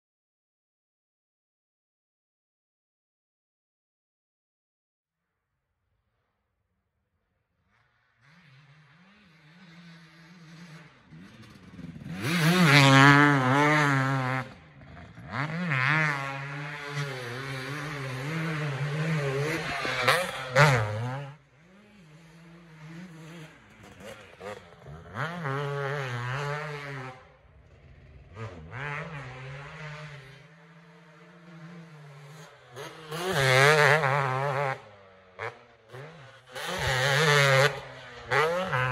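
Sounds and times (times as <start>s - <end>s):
motocross bike engine revving: 7.8s - 38.9s.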